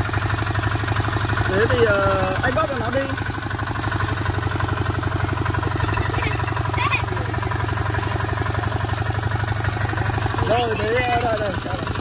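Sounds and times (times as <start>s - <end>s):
diesel tiller engine knocking: 0.0s - 12.0s.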